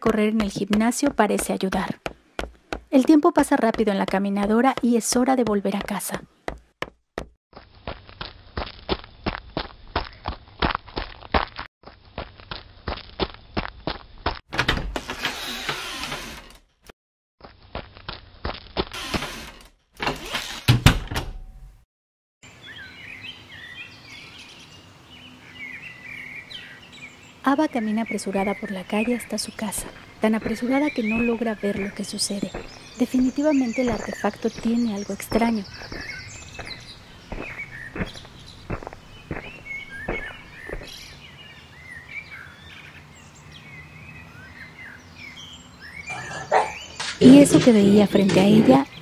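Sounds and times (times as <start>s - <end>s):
birds chirping: 0.0s - 6.6s, 22.4s - 49.0s
footstep: 0.0s - 14.4s, 17.4s - 19.7s, 28.4s - 41.2s
door swinging shut: 14.5s - 16.6s, 19.0s - 21.6s.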